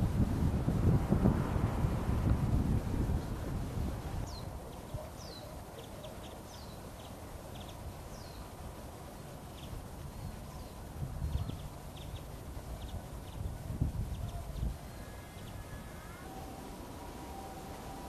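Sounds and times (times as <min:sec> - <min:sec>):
wind rumble on microphone: 0:00.0 - 0:05.2, 0:09.6 - 0:18.0
high thin downward whistles: 0:16.1 - 0:18.0.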